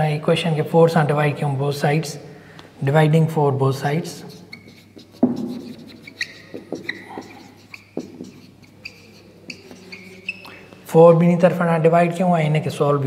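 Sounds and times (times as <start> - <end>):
marker squeaking on whiteboard: 3.7 - 10.9
sharp knocks: 5.2 - 7.4.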